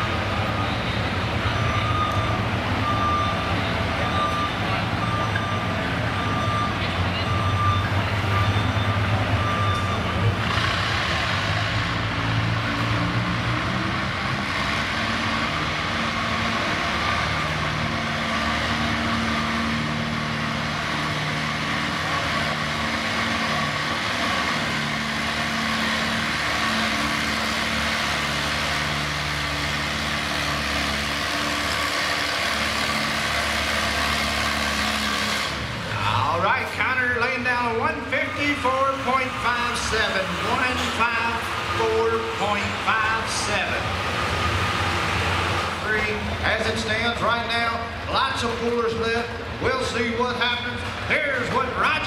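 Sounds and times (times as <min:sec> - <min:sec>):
tractor engine under load: 0:00.0 - 0:52.0
electronic beeping tone: 0:01.6 - 0:10.3.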